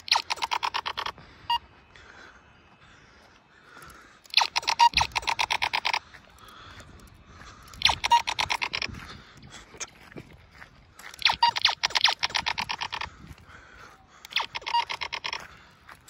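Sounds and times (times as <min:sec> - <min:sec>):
toy blaster electronic bursts: 0:00.0 - 0:01.2, 0:04.2 - 0:06.0, 0:07.6 - 0:08.9, 0:11.1 - 0:13.1, 0:14.2 - 0:15.4.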